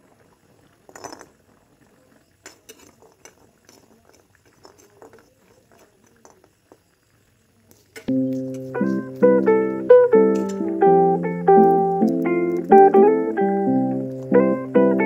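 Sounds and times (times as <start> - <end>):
seeds knocking into wok: 8.0 - 14.9.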